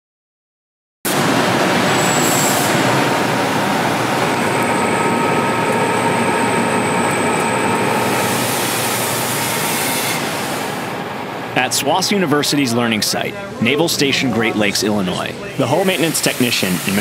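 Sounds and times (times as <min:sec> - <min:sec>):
welding torch flame hissing: 0:07.9 - 0:10.8, 0:15.8 - 0:17.0.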